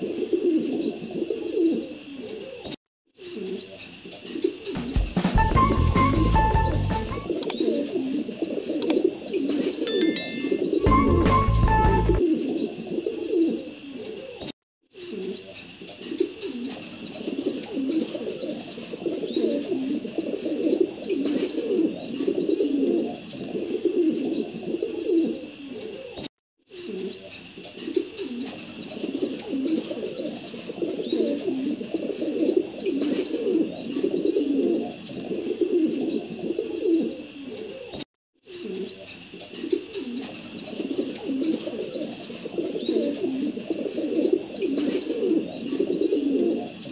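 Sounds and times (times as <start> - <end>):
pigeons cooing: 0.0 - 5.1, 7.3 - 9.9, 10.6 - 46.9
high chirping calls: 9.9 - 12.2.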